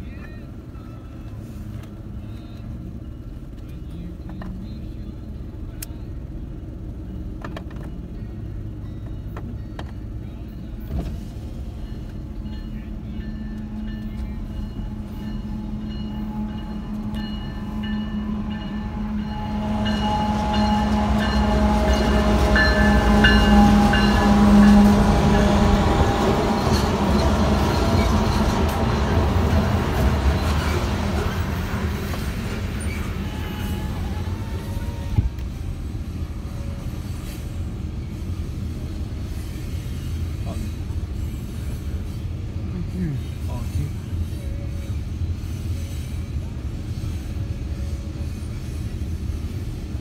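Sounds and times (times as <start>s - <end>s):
diesel locomotive engine drone: 0.0s - 50.0s
freight cars rumbling on rails: 0.0s - 50.0s
rail clicks: 10.8s - 35.7s
steady whine: 11.7s - 39.2s.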